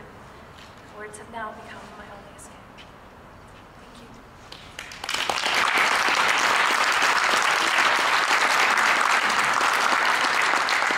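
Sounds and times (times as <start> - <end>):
audience applauding: 4.7 - 10.9.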